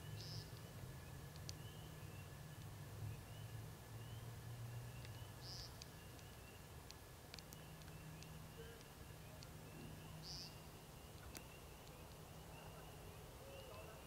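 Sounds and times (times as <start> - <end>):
low steady hum: 0.0 - 14.0
faint clicks: 1.3 - 1.6, 5.0 - 9.6, 11.1 - 12.3.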